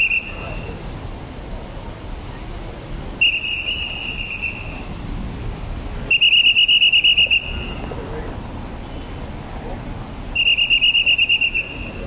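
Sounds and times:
whistle blasts: 0.0 - 0.7, 3.2 - 4.9, 6.1 - 7.8, 10.4 - 12.0
low traffic rumble: 0.0 - 12.0.

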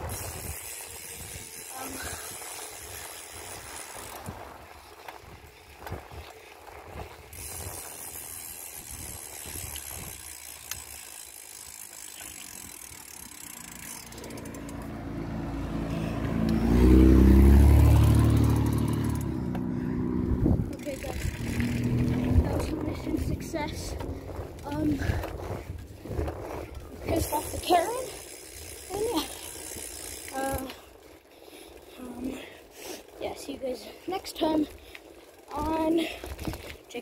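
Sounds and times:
wind noise: 0.0 - 10.9, 20.0 - 30.7
bicycle rattling: 0.0 - 37.0
motor vehicle engine drone: 13.5 - 25.1.

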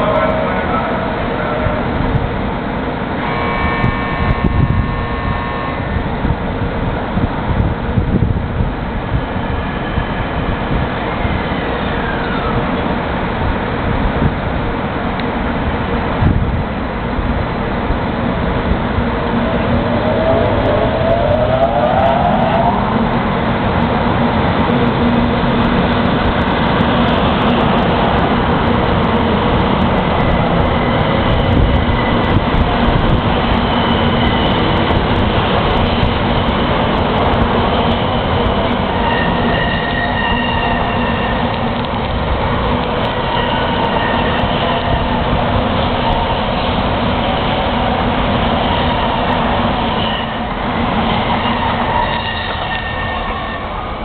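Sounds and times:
train wheels rumbling past: 0.0 - 54.0.

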